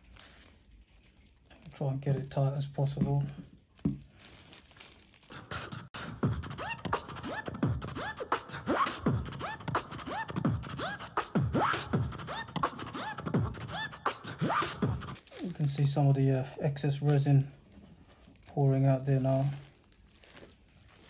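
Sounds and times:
vocal beatbox beat: 5.3s - 15.2s.

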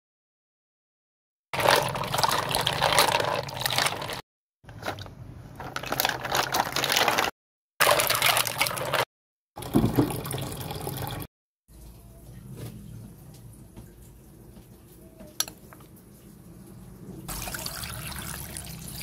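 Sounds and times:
water sloshing and splashing: 1.6s - 10.4s.

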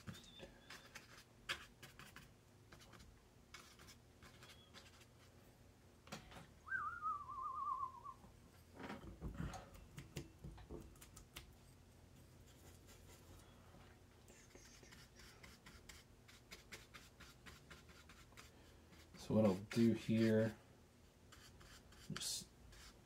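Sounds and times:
paintbrush strokes on paper: 0.0s - 5.5s, 12.2s - 13.6s, 14.3s - 20.6s, 21.3s - 23.0s
warbling whistled note: 6.6s - 8.2s.

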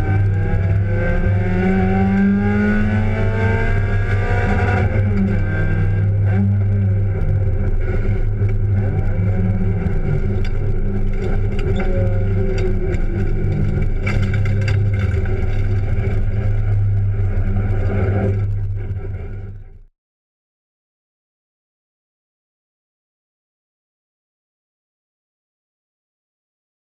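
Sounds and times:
race car engine droning: 0.0s - 19.9s.

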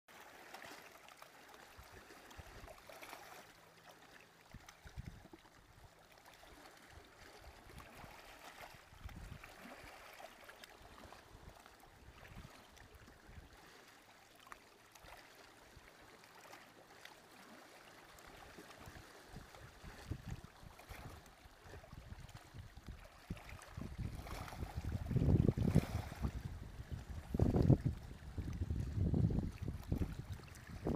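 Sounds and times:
waves lapping on rocks: 0.1s - 30.9s
wind gusts on microphone: 23.3s - 30.9s.

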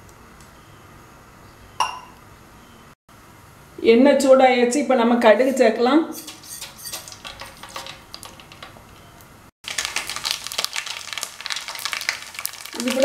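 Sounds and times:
seeds popping in hot oil: 6.2s - 13.0s
spice sizzling in oil: 6.2s - 13.0s.

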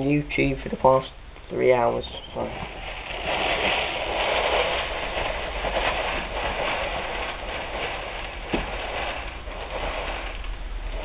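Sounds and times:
cereal pouring into a bowl: 2.7s - 11.0s.

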